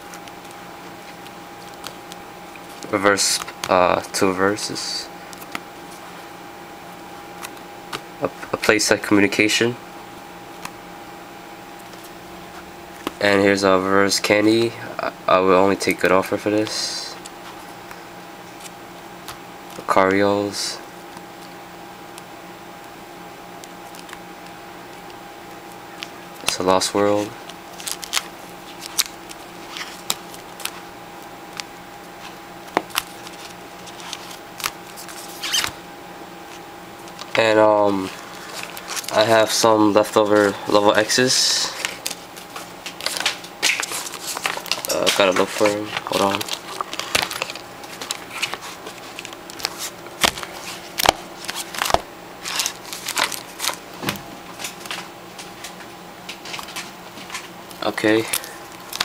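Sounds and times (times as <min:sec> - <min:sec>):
faint steady hum: 0:00.0 - 0:59.0
cards and plastic sleeves clicking: 0:00.1 - 0:03.8, 0:26.0 - 0:30.8, 0:32.6 - 0:35.8, 0:41.8 - 0:55.1, 0:56.4 - 0:59.0.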